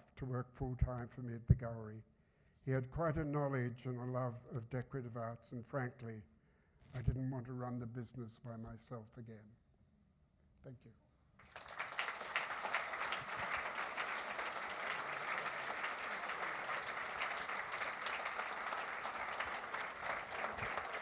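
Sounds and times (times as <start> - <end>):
audience applauding: 11.4 - 21.0.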